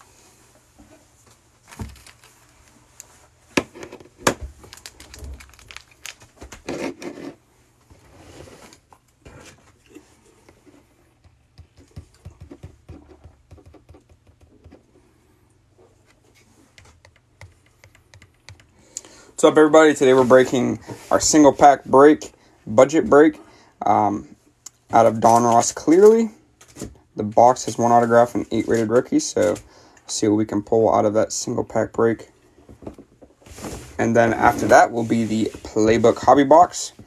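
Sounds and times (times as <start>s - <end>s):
short crinkling: 1.6s - 3.1s, 4.5s - 6.7s
clicks taps and knocks of handling: 11.2s - 14.9s, 16.7s - 18.7s.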